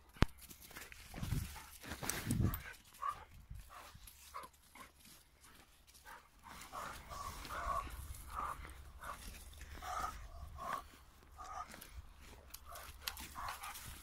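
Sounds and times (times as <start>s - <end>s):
low rumble of wind: 0.8s - 14.0s
dogs yelping: 6.5s - 14.0s.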